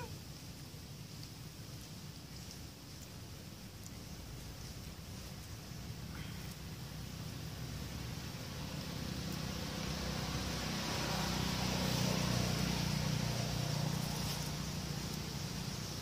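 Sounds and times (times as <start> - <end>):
vehicle engine passing by: 6.8 - 16.0.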